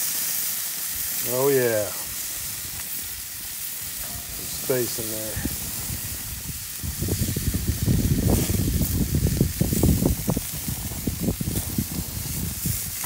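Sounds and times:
meat sizzling on grill: 0:00.0 - 0:13.0
wind buffeting microphone: 0:02.1 - 0:13.0.

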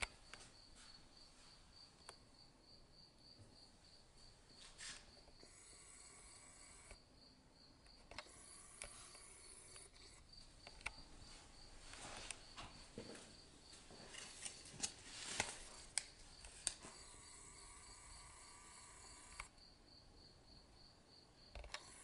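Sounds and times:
soft clicks: 0:07.8 - 0:11.1, 0:19.1 - 0:19.5.

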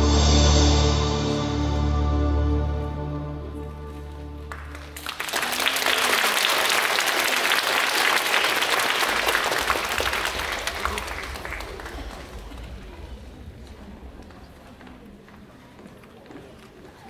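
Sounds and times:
classical dance music: 0:00.0 - 0:06.0
audience applause: 0:04.4 - 0:15.5.

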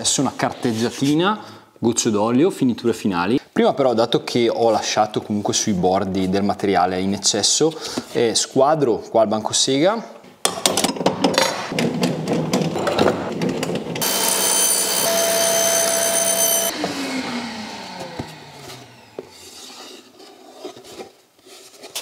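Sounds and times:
handling knocks and clatter: 0:10.3 - 0:14.0
table saw whining: 0:14.0 - 0:20.0.

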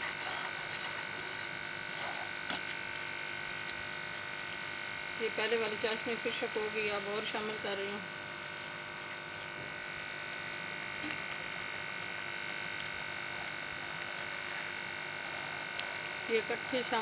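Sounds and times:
steady hum: 0:00.0 - 0:17.0
semolina sizzling in frying pan: 0:00.1 - 0:17.0.

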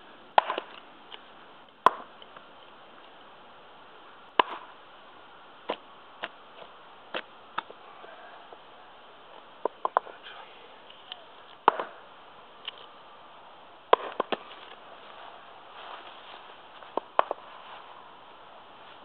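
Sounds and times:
axe chopping wood: 0:00.3 - 0:00.8, 0:01.8 - 0:02.2, 0:04.4 - 0:04.8, 0:11.6 - 0:12.0, 0:13.9 - 0:14.8, 0:16.9 - 0:17.5.

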